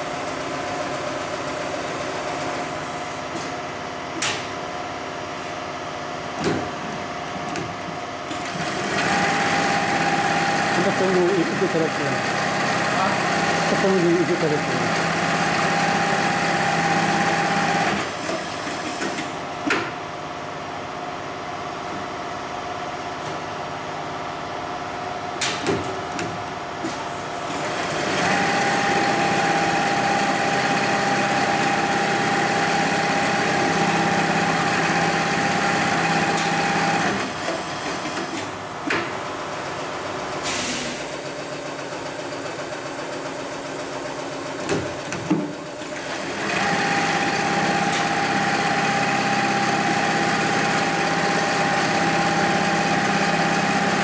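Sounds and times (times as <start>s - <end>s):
sewing machine whining: 8.3s - 19.3s, 27.5s - 38.4s, 45.8s - 54.0s.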